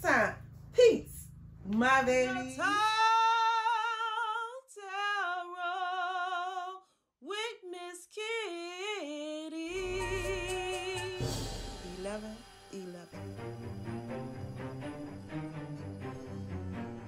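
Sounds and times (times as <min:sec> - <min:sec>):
low instrumental backing: 0:09.7 - 0:17.0.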